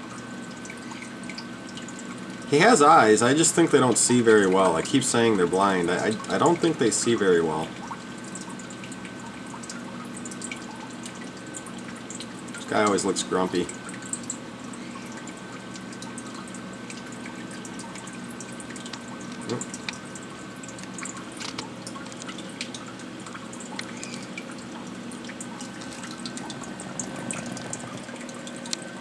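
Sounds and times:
aquarium water trickling: 0.0 - 29.0
faint steady whine: 0.0 - 29.0
small clicks: 20.8 - 22.8, 23.7 - 24.3.

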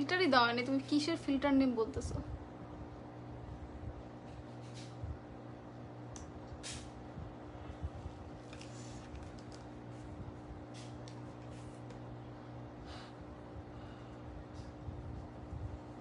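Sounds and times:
low electrical hum: 0.0 - 16.0
rustling and handling noises: 7.8 - 12.1.

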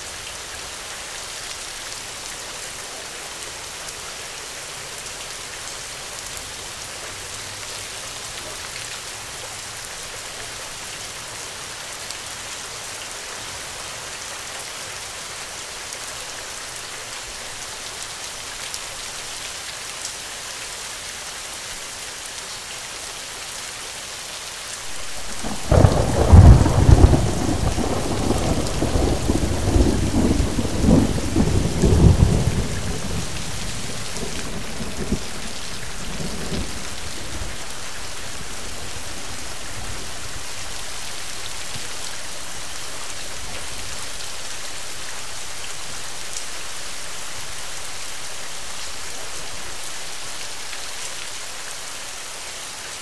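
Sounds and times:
steady rain: 0.0 - 53.0
thunder crack and rumble: 24.9 - 37.5.

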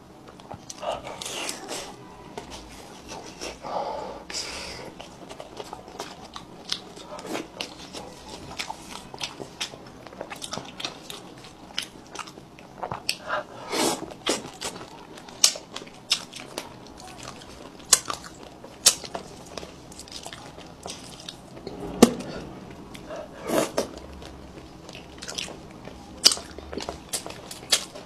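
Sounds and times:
person chewing fish: 4.8 - 21.7, 22.5 - 28.0.

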